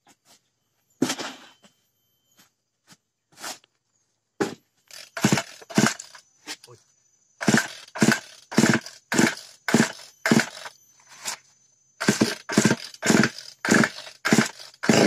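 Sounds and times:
chainsaw recoil starter pulls: 0:04.9 - 0:06.2, 0:07.4 - 0:10.7, 0:12.0 - 0:15.0.

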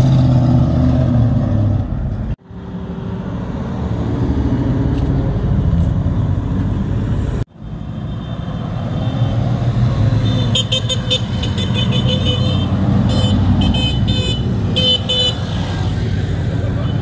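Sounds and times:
car horn short blasts: 0:10.3 - 0:15.4.

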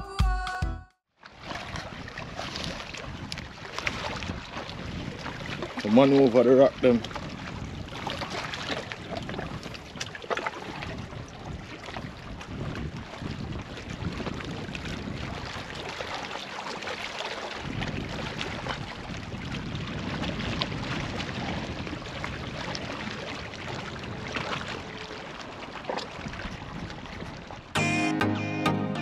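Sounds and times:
seawater splashing among rocks: 0:01.2 - 0:27.8
wind on microphone: 0:01.4 - 0:16.4, 0:17.4 - 0:27.8.

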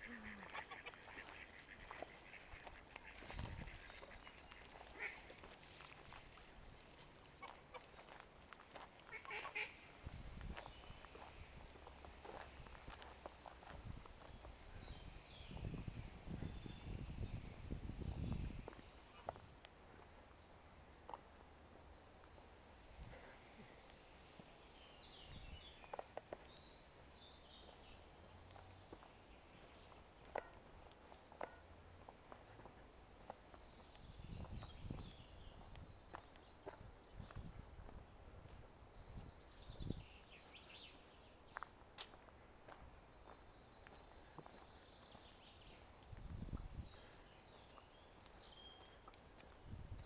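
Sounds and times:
goose honking: 0:00.0 - 0:04.3
songbird chirps: 0:00.0 - 0:22.4, 0:23.3 - 0:37.7, 0:38.6 - 0:50.0
footsteps on dirt path: 0:00.2 - 0:14.6, 0:41.5 - 0:45.3.

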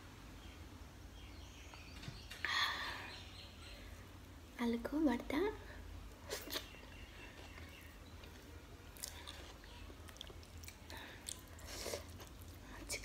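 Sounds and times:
chewing food: 0:06.3 - 0:13.0.

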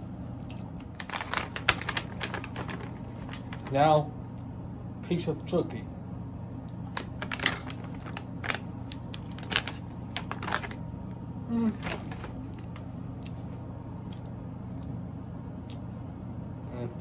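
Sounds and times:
steady low hum: 0:00.0 - 0:17.0
plastic bag crinkling: 0:00.7 - 0:03.9, 0:06.9 - 0:10.9, 0:11.8 - 0:12.9.

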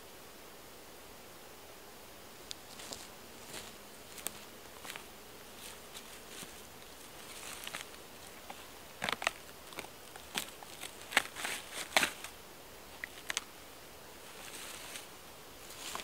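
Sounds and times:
rotten log cracking apart: 0:07.4 - 0:12.3, 0:13.0 - 0:13.5.

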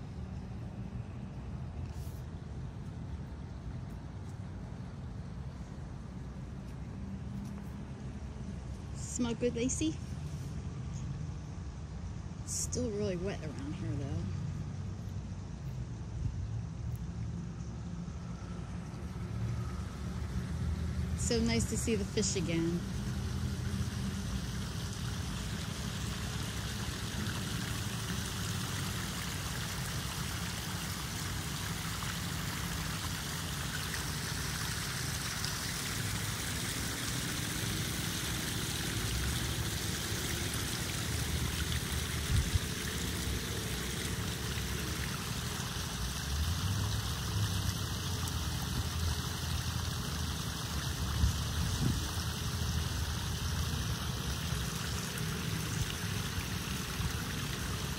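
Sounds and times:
water splashing into pond: 0:16.8 - 0:57.9.

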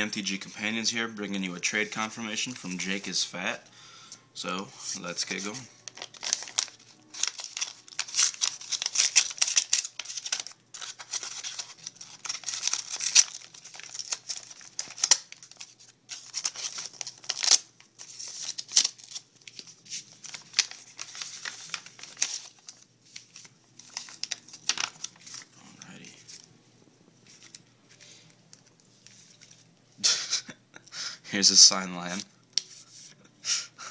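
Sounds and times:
paper tearing and crinkling: 0:05.1 - 0:26.5
envelope cut open: 0:05.9 - 0:22.8.

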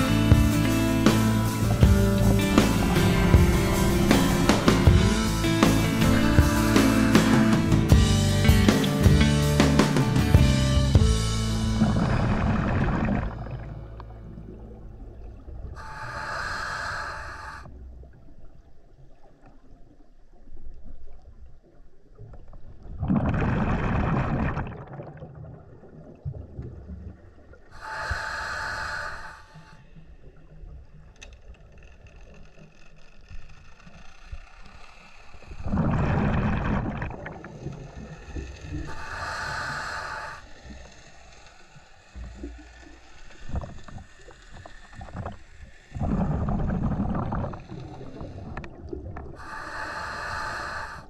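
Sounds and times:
exhaled bubbles rushing: 0:01.1 - 0:07.3, 0:11.8 - 0:15.9, 0:22.4 - 0:27.7, 0:35.5 - 0:40.4, 0:42.2 - 0:49.5
regulator inhalation hiss: 0:15.8 - 0:17.7, 0:27.8 - 0:29.8, 0:38.3 - 0:48.6, 0:49.4 - 0:51.0.

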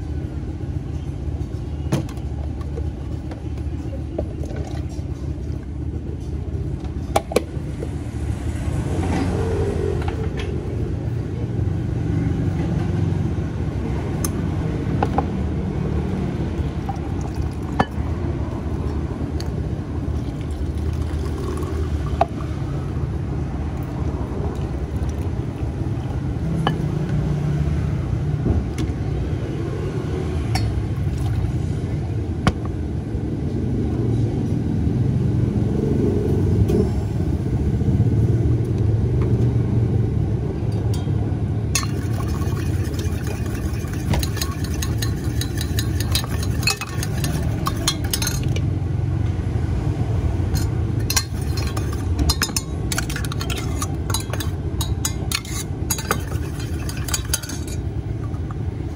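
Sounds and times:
metal spoon clinking in steel cup: 0:41.8 - 0:48.7, 0:50.5 - 0:58.6.

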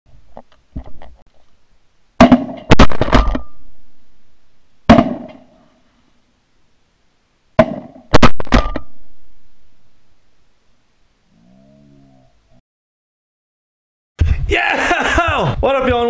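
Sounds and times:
shotguns firing: 0:02.2 - 0:03.6, 0:04.9 - 0:05.4.

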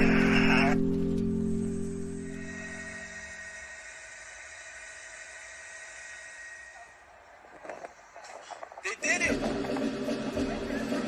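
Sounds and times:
steady hiss: 0:01.3 - 0:08.6.

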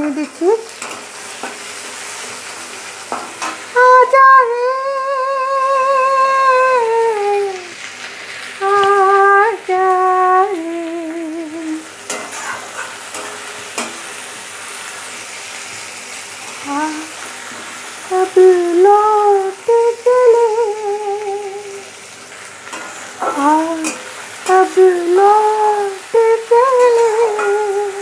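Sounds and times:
onions sizzling in hot oil: 0:00.0 - 0:28.0
woman singing: 0:03.7 - 0:07.8, 0:08.6 - 0:11.9, 0:16.6 - 0:17.2, 0:18.0 - 0:21.8, 0:23.2 - 0:28.0
spatula scraping a pan: 0:12.1 - 0:14.1, 0:22.6 - 0:24.2.

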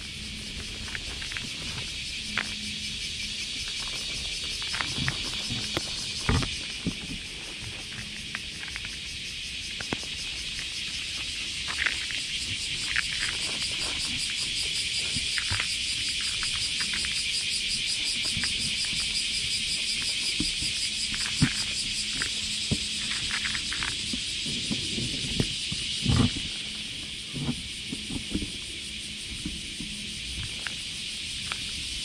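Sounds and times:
cicadas buzzing: 0:00.0 - 0:32.0
cat chewing dry kibble: 0:11.4 - 0:24.8.

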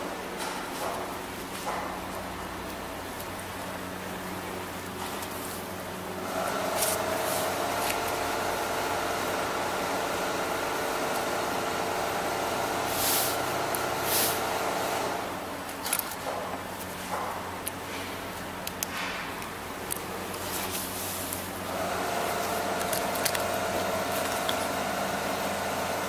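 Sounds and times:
machine hum: 0:02.3 - 0:18.7, 0:19.5 - 0:26.0
compressed air hisses: 0:12.9 - 0:13.4.

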